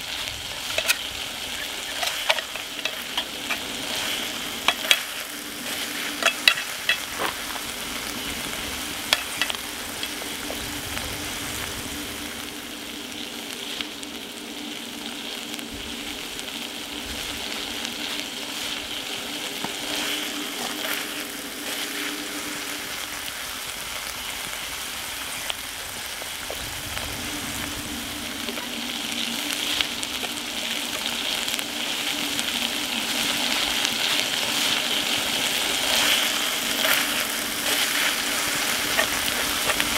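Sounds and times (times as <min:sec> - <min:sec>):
rice sizzling in a skillet: 0:00.0 - 0:39.9
wooden spatula scraping a pan: 0:00.4 - 0:07.7, 0:34.0 - 0:39.9.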